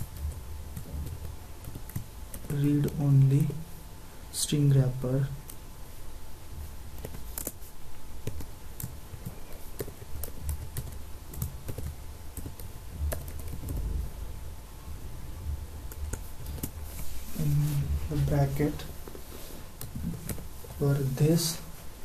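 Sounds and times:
keyboard typing: 0:00.0 - 0:03.5, 0:06.9 - 0:14.1
low steady hum: 0:00.0 - 0:22.0.

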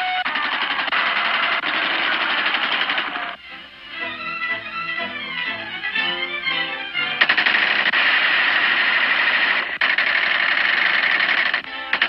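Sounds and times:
submachine gun automatic bursts: 0:00.2 - 0:03.4, 0:07.2 - 0:12.0.

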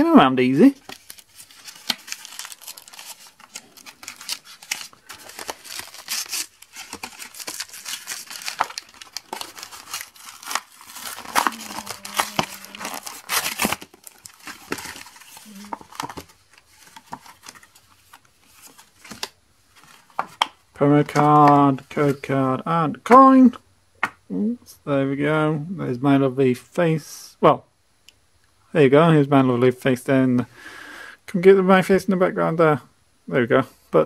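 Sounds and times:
packaging being torn open: 0:00.8 - 0:16.3.

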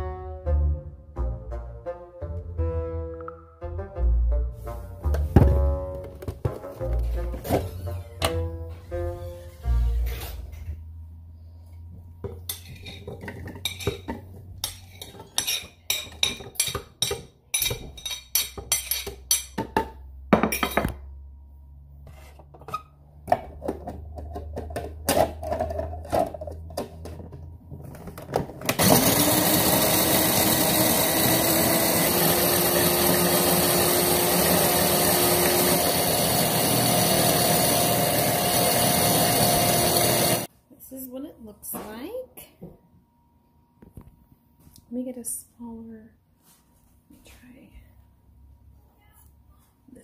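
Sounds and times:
food processor motor grinding: 0:28.7 - 0:40.5.

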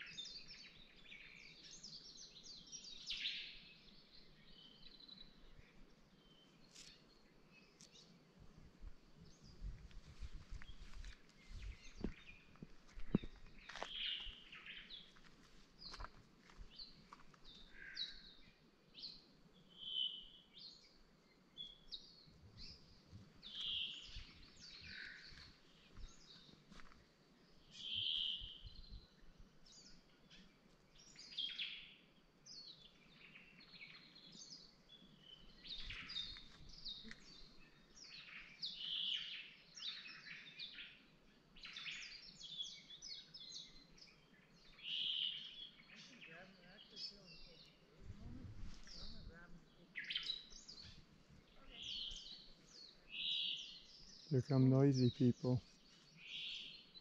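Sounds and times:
birds chirping and whistling: 0:10.5 - 0:15.2, 0:21.7 - 0:26.5, 0:27.7 - 0:29.1, 0:44.6 - 0:46.2, 0:50.0 - 0:51.0, 0:51.7 - 0:55.5, 0:56.1 - 0:57.0.

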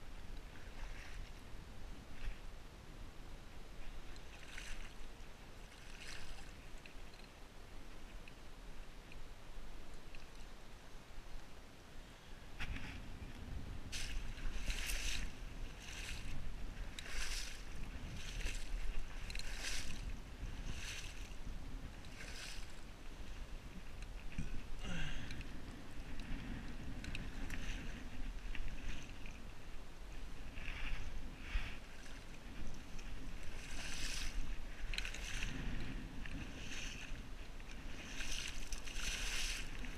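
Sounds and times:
wind on microphone: 0:12.3 - 0:39.9
splashing steps through marsh water: 0:13.9 - 0:21.4, 0:22.1 - 0:22.9, 0:31.7 - 0:39.9.

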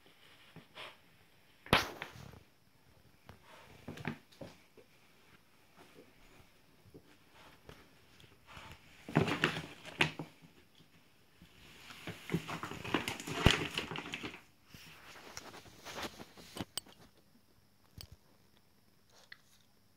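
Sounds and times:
plastic bag crinkling and rustling: 0:07.7 - 0:17.1.

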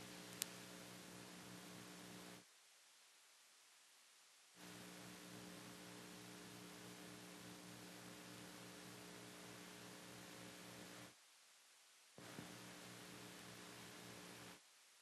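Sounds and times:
faint electrical hum: 0:00.0 - 0:15.0
light hiss: 0:00.0 - 0:15.0.

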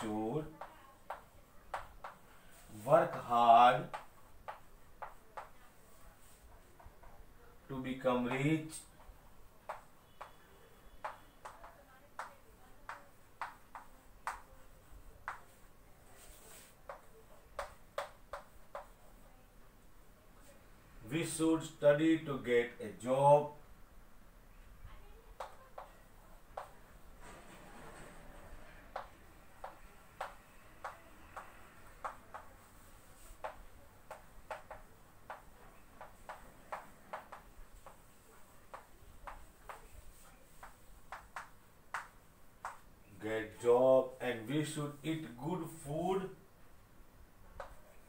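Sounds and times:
chalk tapping on chalkboard: 0:00.0 - 0:05.6, 0:08.3 - 0:10.4, 0:11.0 - 0:14.5, 0:15.2 - 0:15.6, 0:16.2 - 0:19.0, 0:25.4 - 0:26.8, 0:28.9 - 0:42.9.

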